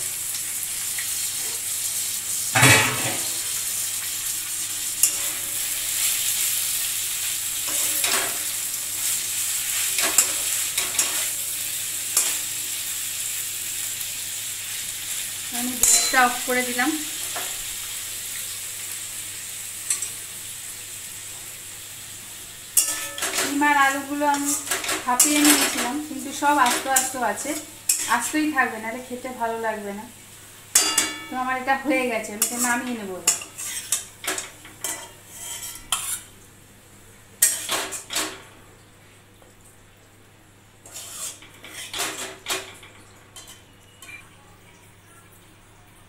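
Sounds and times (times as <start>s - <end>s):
curry sizzling in oil: 0.0s - 45.0s
spatula scraping metal pan: 2.6s - 3.5s, 24.3s - 26.0s, 32.4s - 34.1s, 34.8s - 36.3s, 40.8s - 42.3s.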